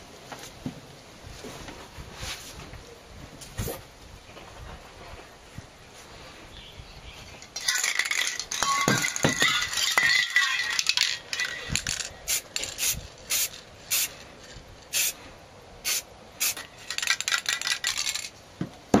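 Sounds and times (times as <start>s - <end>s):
spray paint can hissing: 10.8s - 14.2s, 14.9s - 15.2s, 15.8s - 18.3s.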